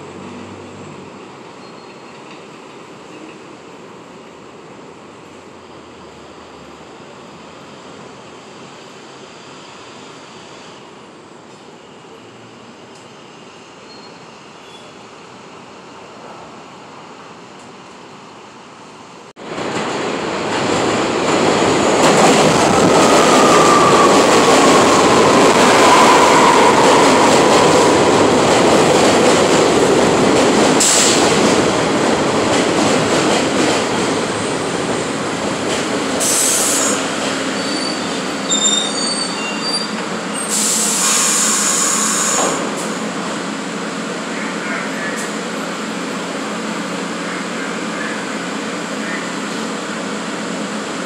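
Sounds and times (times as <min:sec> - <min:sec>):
subway train wheels and motors: 0:00.0 - 0:51.0
brake squeal: 0:01.6 - 0:02.2, 0:13.8 - 0:15.0, 0:36.2 - 0:42.5
short hisses of air: 0:40.5 - 0:42.6.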